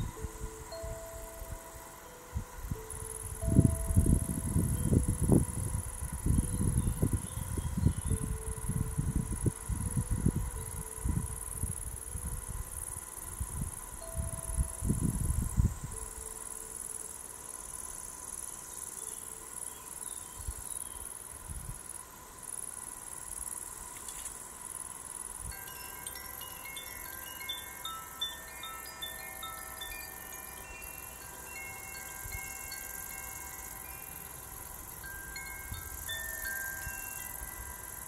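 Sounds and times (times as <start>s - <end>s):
hand chimes tinkling: 0.0s - 9.9s, 25.5s - 38.0s
crickets chirping: 0.0s - 38.0s.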